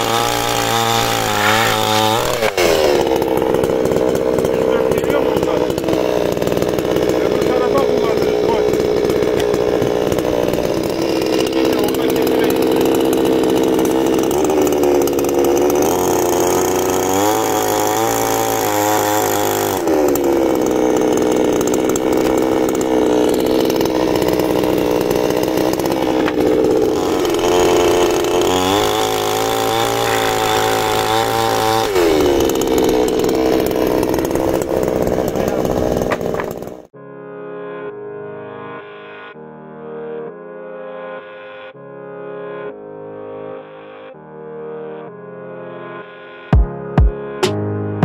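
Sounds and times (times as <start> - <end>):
power saw cutting wood: 0.0 - 37.0.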